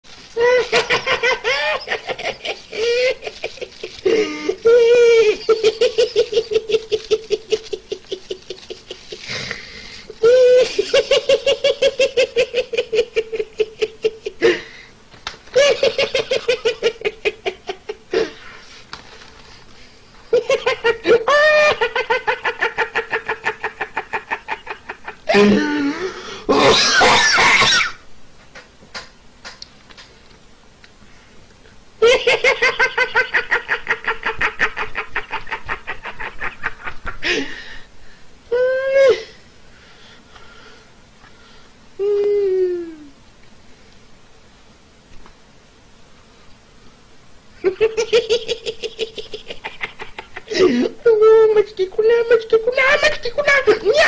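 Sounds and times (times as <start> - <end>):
man laughing uncontrollably: 0.4 - 9.3, 10.2 - 14.7, 15.5 - 18.4, 20.3 - 27.9, 32.0 - 37.5, 47.6 - 51.4.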